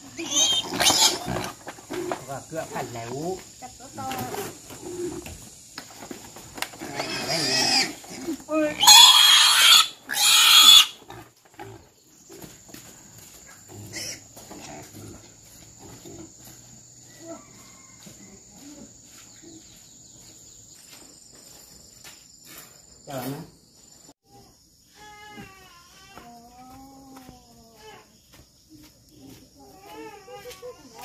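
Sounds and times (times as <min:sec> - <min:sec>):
pig squealing: 0:00.0 - 0:02.2, 0:06.8 - 0:11.3
pig grunting: 0:06.8 - 0:11.9.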